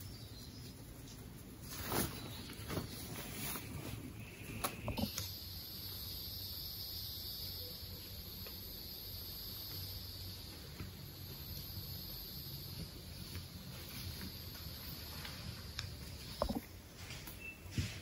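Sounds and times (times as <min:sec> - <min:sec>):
tent fabric rustling: 0:01.5 - 0:04.6
high-pitched insect drone: 0:04.3 - 0:15.4.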